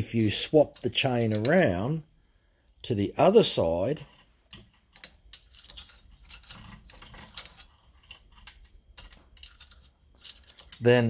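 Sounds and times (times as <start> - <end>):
saw chain clicking and rattling: 4.0 - 11.0.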